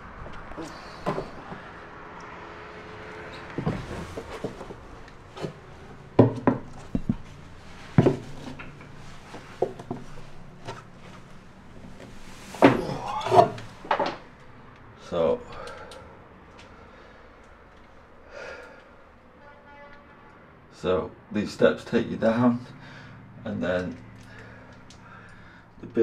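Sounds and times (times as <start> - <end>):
loud bumps: 3.4 - 8.6
footsteps on fibreglass steps: 3.5 - 12.8.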